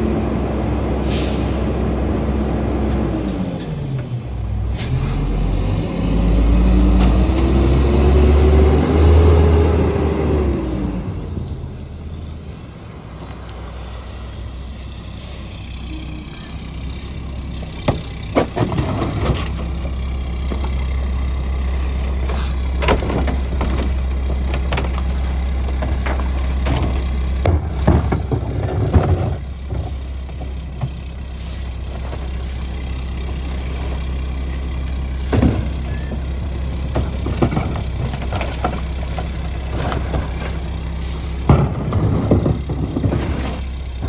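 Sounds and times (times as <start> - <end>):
garbage truck diesel engine: 0.0 - 44.0
trash carts clunking: 14.7 - 44.0.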